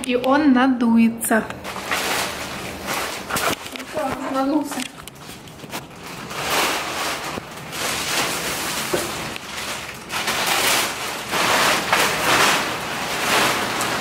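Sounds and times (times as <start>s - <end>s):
plastic film crinkling: 1.6s - 14.0s.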